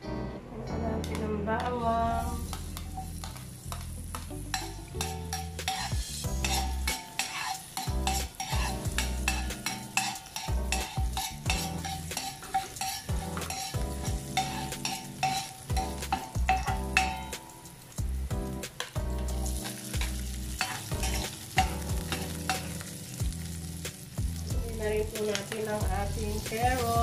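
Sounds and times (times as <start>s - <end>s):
garlic sizzling in a pan: 2.2s - 27.0s
utensil scraping and tapping pan: 2.4s - 17.4s.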